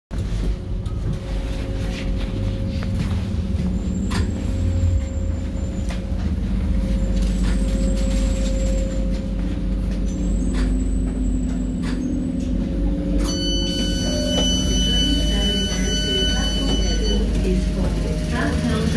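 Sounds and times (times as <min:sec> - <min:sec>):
train rumble and motor hum: 0:00.1 - 0:18.9
steady high electronic tone: 0:01.0 - 0:18.9
faint high wheel squeal: 0:13.2 - 0:17.3.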